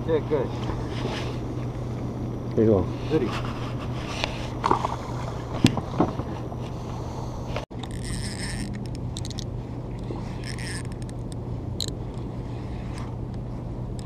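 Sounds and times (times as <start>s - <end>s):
low hum: 0.0s - 14.0s
fishing reel whirring and clicking: 7.7s - 12.2s.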